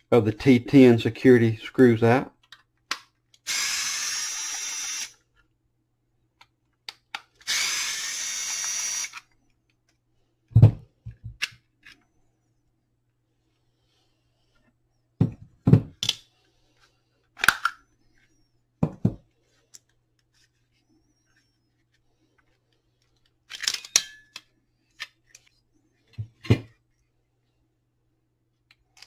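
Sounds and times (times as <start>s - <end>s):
plastic housing clicking apart: 17.4s - 17.8s, 23.5s - 25.4s.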